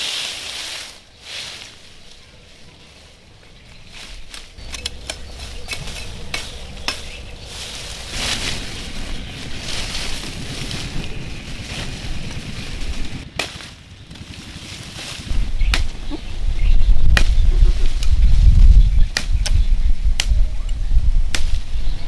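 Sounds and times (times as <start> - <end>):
leaves and branches rustling: 0.0 - 22.0
twigs snapping: 3.8 - 11.2, 11.8 - 16.2, 17.1 - 18.2, 19.0 - 20.4, 21.3 - 21.7.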